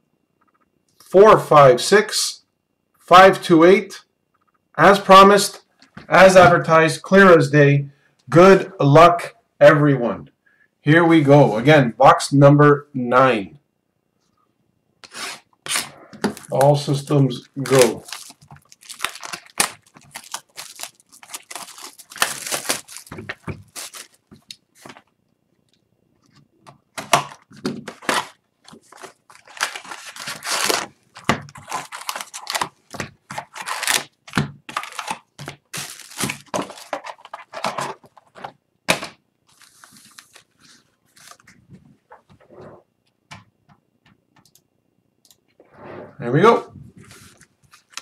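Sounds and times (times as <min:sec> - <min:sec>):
plastic shrink wrap crinkling: 0:15.6 - 0:25.8, 0:27.3 - 0:38.5, 0:39.4 - 0:41.6, 0:47.0 - 0:48.0
foil packs rustling: 0:15.7 - 0:25.1, 0:27.2 - 0:38.5, 0:39.5 - 0:41.5, 0:47.0 - 0:48.0
cardboard box tearing: 0:29.3 - 0:30.9.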